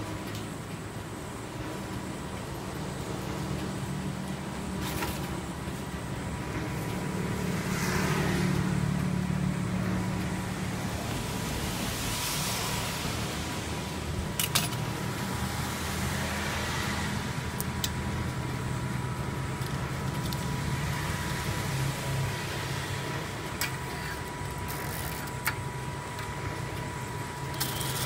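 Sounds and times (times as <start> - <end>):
laminating machine motor hum: 0.0 - 28.0
thin high whine: 9.4 - 28.0.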